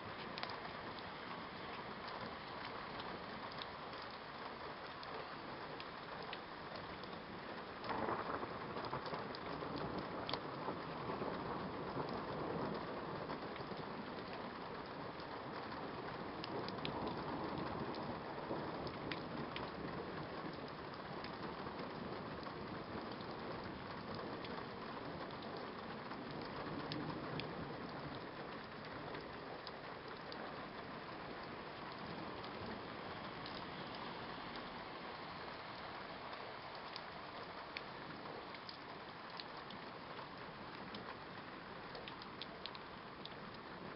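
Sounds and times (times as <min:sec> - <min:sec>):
steady rain falling: 0:00.0 - 0:43.9
thunder rumbling: 0:07.8 - 0:14.1.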